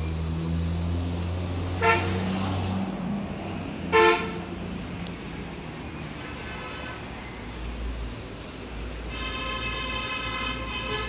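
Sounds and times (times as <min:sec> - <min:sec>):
vehicle horn toots: 0:01.8 - 0:02.2, 0:03.9 - 0:04.4, 0:09.1 - 0:11.0.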